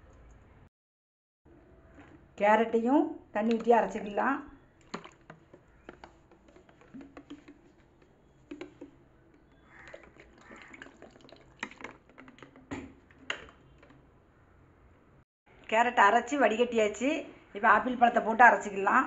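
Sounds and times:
steel jar clicks and knocks: 4.8 - 14.0
water being poured: 4.8 - 14.0.

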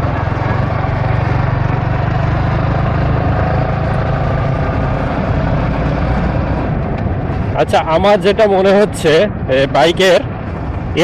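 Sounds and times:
motorcycle engine cruising: 0.0 - 8.0.

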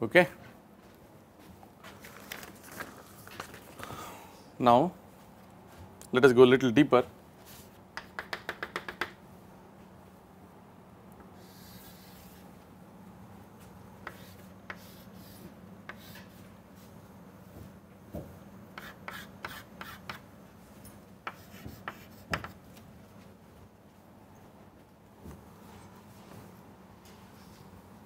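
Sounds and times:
low room hum: 0.0 - 28.0
chalk tapping and scraping on blackboard: 7.4 - 9.2, 14.0 - 16.5, 18.7 - 20.3, 21.2 - 22.7.

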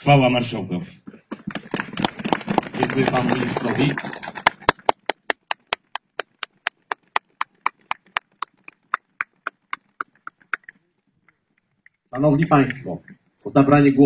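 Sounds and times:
hands clapping: 1.3 - 10.7.

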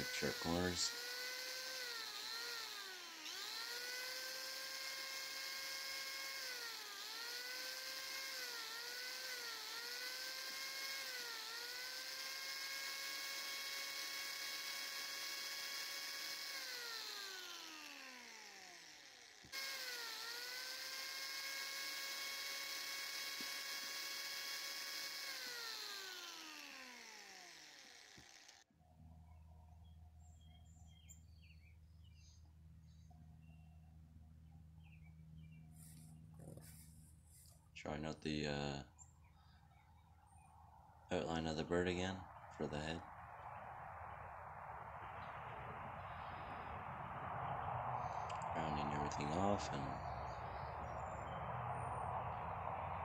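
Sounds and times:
electric grinder whining on wood: 0.0 - 28.7, 48.0 - 53.0.

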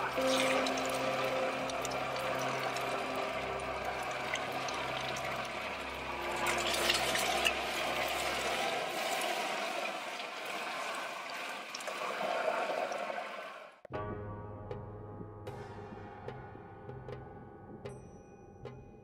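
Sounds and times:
rushing water: 0.0 - 13.8.

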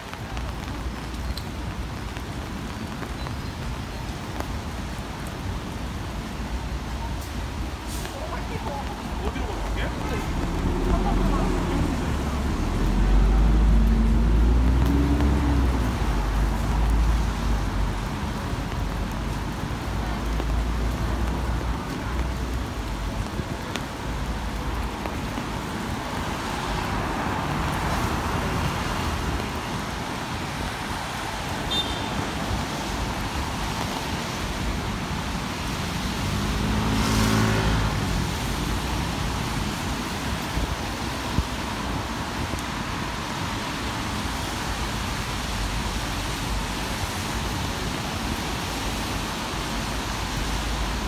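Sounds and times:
rain hissing: 0.0 - 51.0
road traffic: 0.0 - 51.0
tyres on wet road: 0.0 - 51.0
vehicle engine passing: 36.2 - 38.6.

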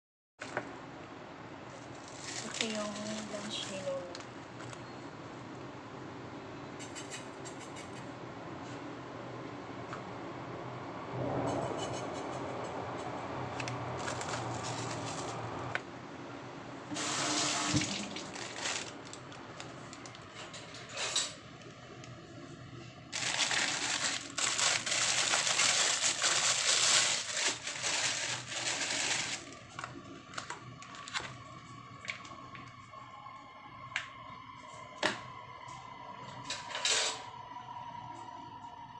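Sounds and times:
water running from tap: 17.0 - 18.9.

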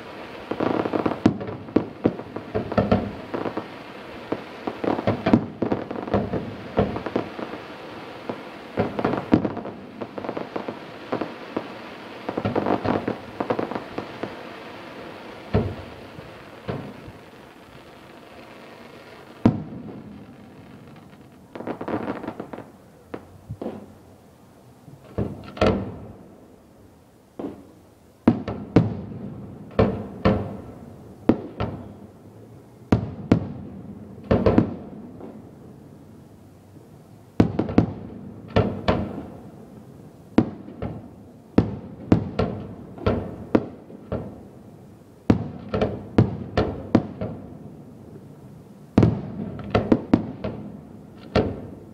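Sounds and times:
fireworks bursting with bangs: 0.0 - 24.1, 25.0 - 26.3, 27.4 - 32.2, 32.9 - 35.6, 37.2 - 51.9.

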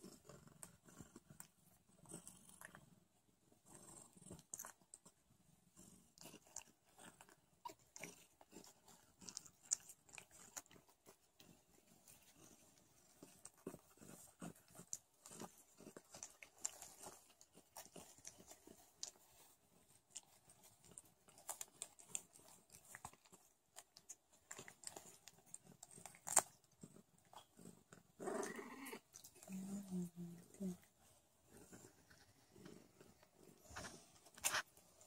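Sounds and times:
cats licking wetly: 4.0 - 28.1.

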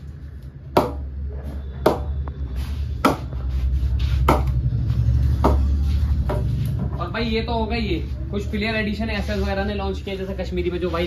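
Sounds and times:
ball knocking on cricket bat: 5.4 - 5.7.

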